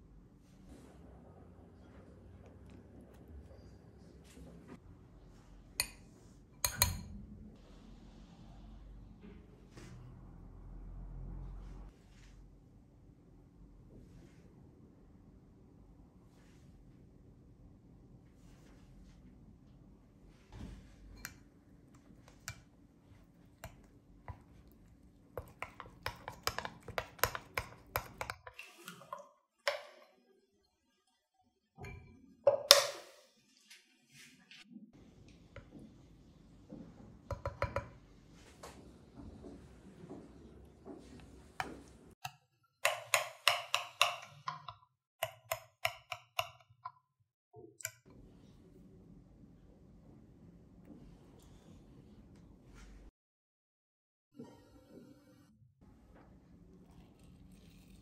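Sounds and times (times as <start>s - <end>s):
spoon clinking against glass bowl: 6.6s - 7.1s.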